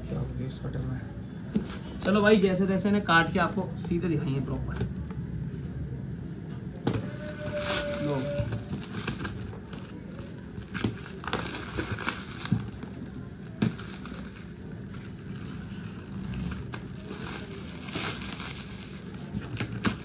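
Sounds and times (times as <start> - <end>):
plastic wrap crinkling: 6.9 - 20.0.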